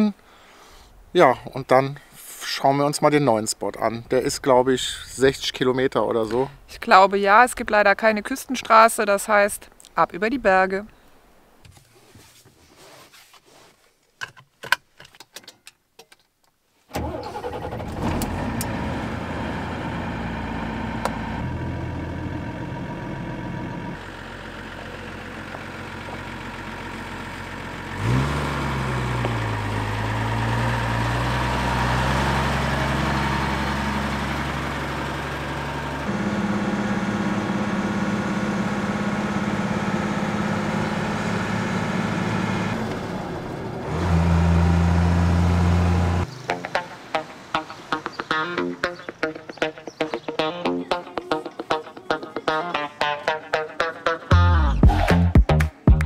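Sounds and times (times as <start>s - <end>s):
diesel truck engine: 16.9s - 48.2s.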